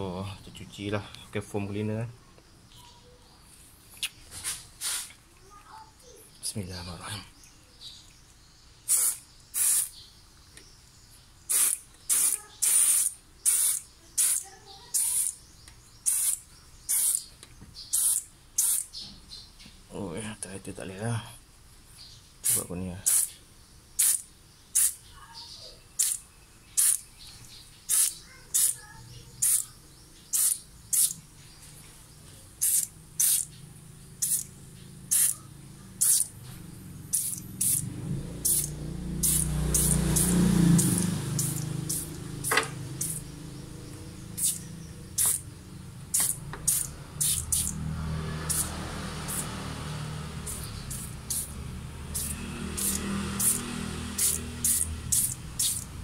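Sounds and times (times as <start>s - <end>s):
aerosol spray hissing: 4.8s - 5.1s, 8.9s - 10.0s, 11.5s - 14.4s, 16.1s - 17.3s, 18.0s - 18.9s, 27.9s - 28.8s, 30.3s - 31.2s, 32.6s - 33.5s, 34.2s - 34.5s, 35.1s - 35.4s, 36.0s - 36.3s, 37.1s - 37.8s, 38.4s - 43.3s, 44.4s - 45.5s, 46.1s - 47.8s, 48.4s - 55.9s.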